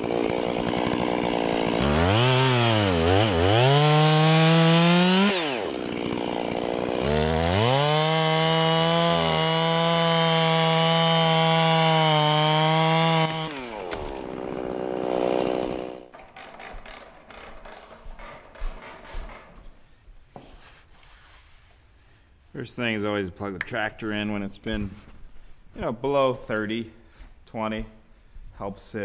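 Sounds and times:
chainsaw cutting log: 0.0s - 19.5s.

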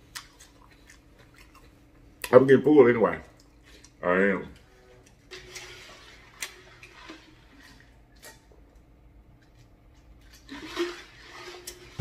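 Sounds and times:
mouth chewing smacks: 0.0s - 2.4s.

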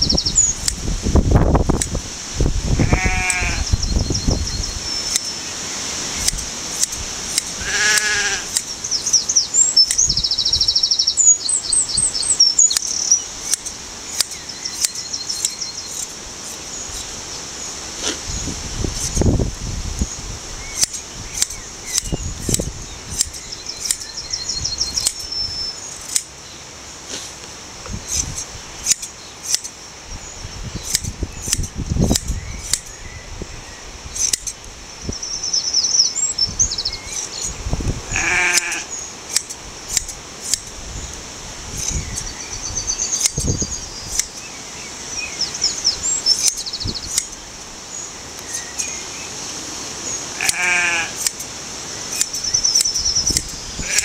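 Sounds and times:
small birds twittering: 0.0s - 54.0s
sheep bleating: 2.8s - 3.7s, 7.6s - 8.5s, 38.1s - 38.9s, 50.4s - 51.2s, 53.8s - 54.0s
shears snipping fleece: 5.0s - 5.4s, 6.2s - 10.1s, 12.2s - 17.2s, 18.0s - 18.3s, 18.9s - 19.3s, 20.8s - 24.1s, 26.0s - 26.3s, 27.1s - 29.8s, 30.8s - 32.9s, 34.2s - 34.6s, 38.5s - 40.8s, 43.0s - 43.5s, 44.1s - 44.4s, 46.3s - 47.4s, 50.4s - 51.5s, 52.1s - 53.6s.

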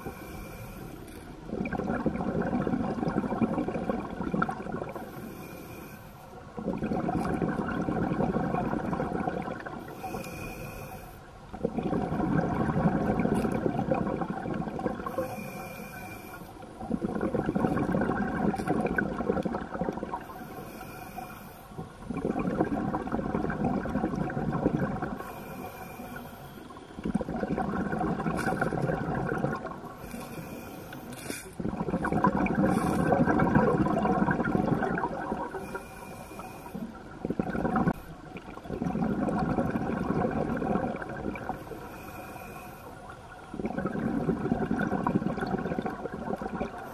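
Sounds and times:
diver breathing through regulator: 0.0s - 1.4s, 4.9s - 6.4s, 9.8s - 11.3s, 15.0s - 16.6s, 20.2s - 21.8s, 25.0s - 27.0s, 28.2s - 34.8s, 35.5s - 37.0s, 41.4s - 43.2s
bubbling exhaust: 1.4s - 5.8s, 6.5s - 10.8s, 11.5s - 46.9s.

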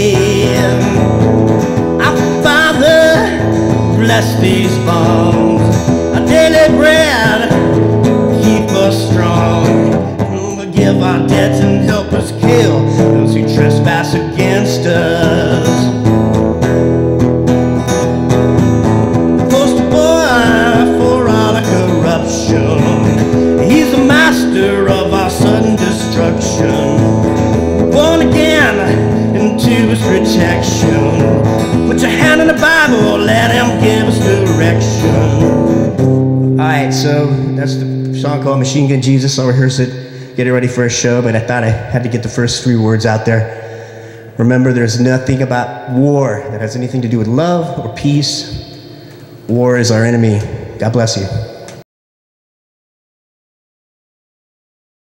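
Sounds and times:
man singing: 0.0s - 16.2s, 19.2s - 43.6s
acoustic guitar strumming: 0.0s - 50.7s.

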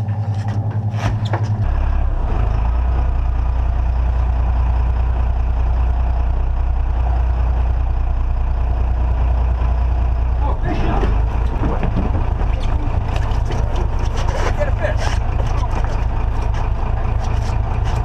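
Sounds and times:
boat engine running: 9.7s - 18.0s.

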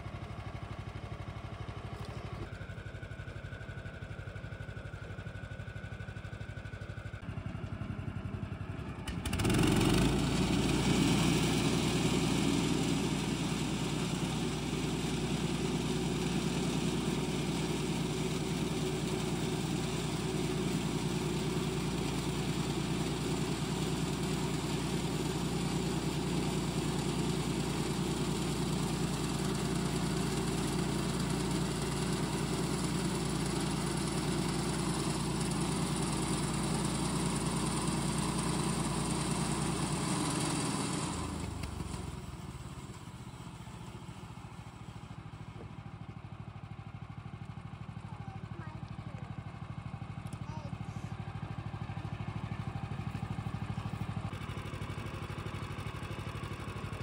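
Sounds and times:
bandsaw mill cutting log: 9.1s - 42.8s.

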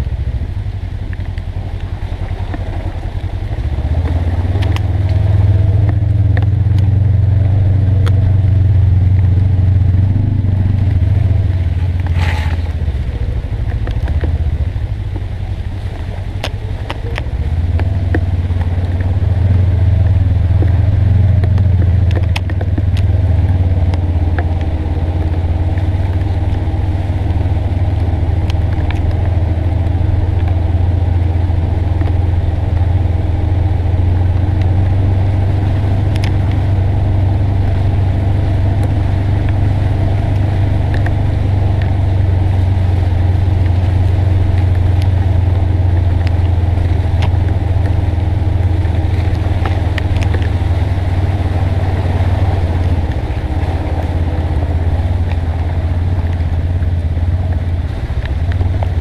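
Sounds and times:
vehicle engine droning: 0.0s - 59.0s.

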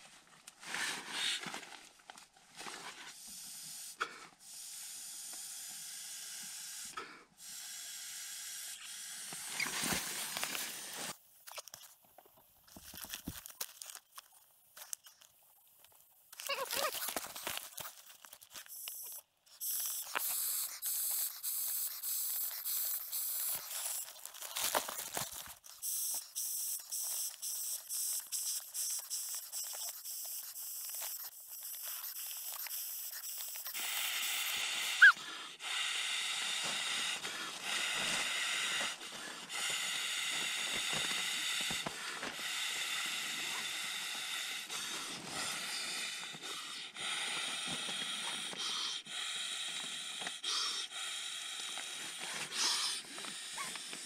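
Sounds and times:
person inhaling: 28.4s - 54.0s.

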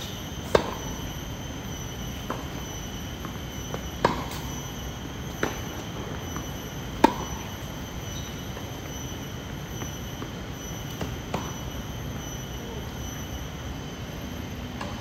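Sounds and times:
tennis ball bouncing: 0.4s - 1.2s, 2.1s - 9.0s, 9.7s - 11.8s.

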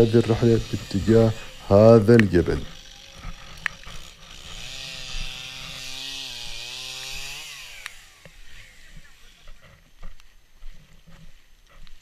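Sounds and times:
chainsaw cutting wood: 0.0s - 10.0s.

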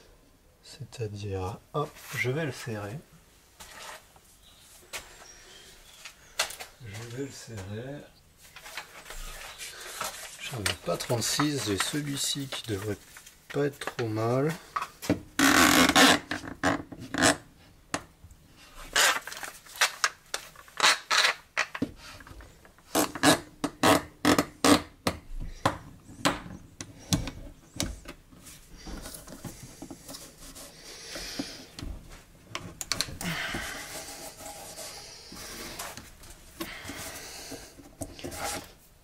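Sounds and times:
soft scraping rustle: 1.8s - 15.0s, 28.3s - 32.4s, 33.6s - 39.0s.

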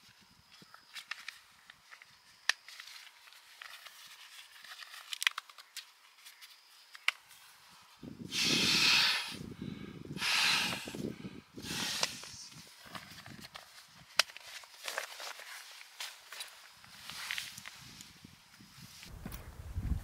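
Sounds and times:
rustling scraping noises: 2.6s - 7.6s, 11.8s - 19.5s.

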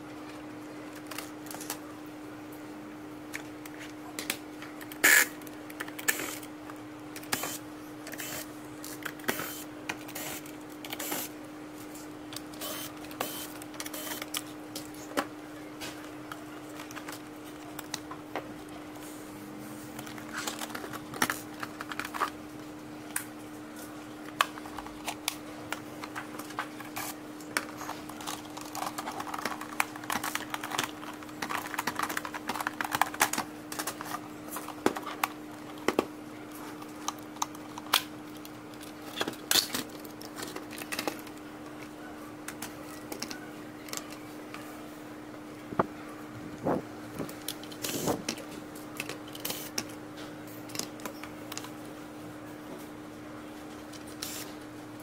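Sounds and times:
steady low hum: 0.0s - 55.0s
plastic parts and screws rattling: 24.6s - 36.0s.

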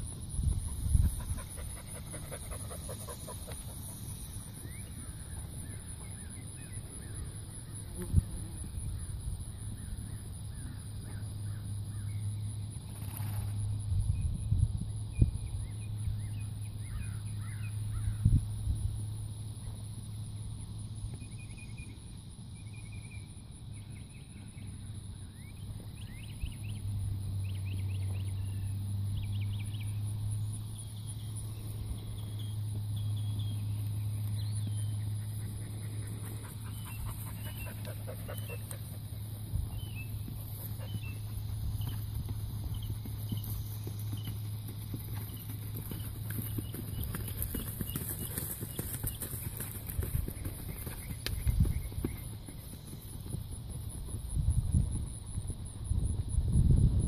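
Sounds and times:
steady low hum: 0.0s - 57.0s
horse hoofbeats on grass: 31.4s - 56.2s.

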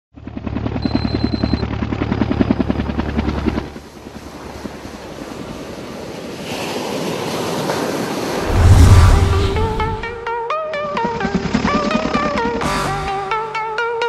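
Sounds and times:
helicopter rotor chopping: 0.2s - 6.4s, 8.3s - 12.6s
ocean surf washing in: 3.8s - 10.3s
deep boom: 8.4s - 10.2s.

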